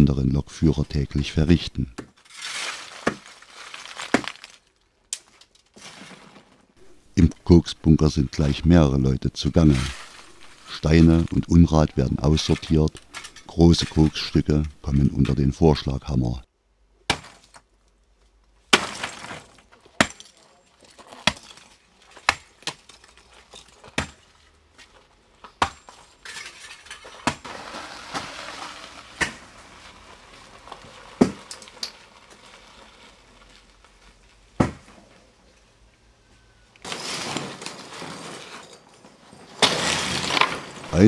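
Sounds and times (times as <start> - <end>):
sledgehammer cracking coke: 2.1 - 6.6, 18.7 - 20.3, 27.0 - 33.8, 34.4 - 35.1, 39.5 - 40.9.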